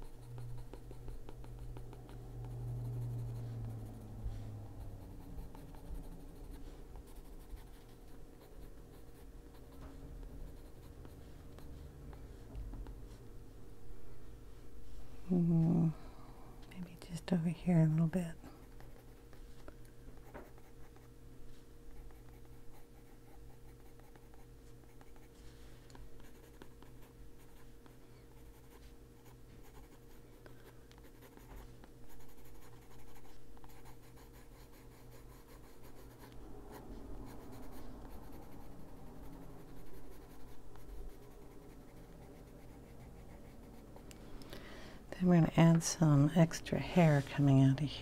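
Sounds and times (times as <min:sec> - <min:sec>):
pencil scratching on paper: 0:00.0 - 0:12.0, 0:21.9 - 0:25.4, 0:26.0 - 0:44.0
steady low hum: 0:00.0 - 0:48.0.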